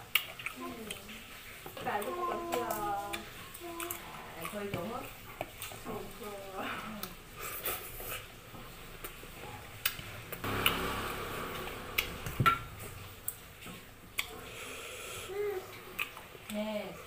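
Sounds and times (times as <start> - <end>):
chewing smacks: 0.0 - 1.3, 13.3 - 14.5, 15.7 - 16.6.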